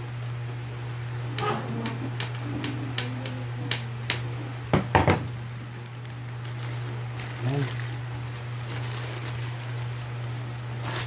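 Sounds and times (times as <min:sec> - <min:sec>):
loud knocks: 0:04.7 - 0:05.3.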